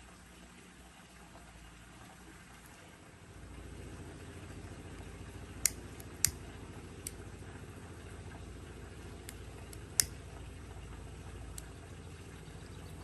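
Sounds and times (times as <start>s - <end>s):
motor humming: 3.6s - 13.0s
sharp clicks: 5.6s - 7.2s.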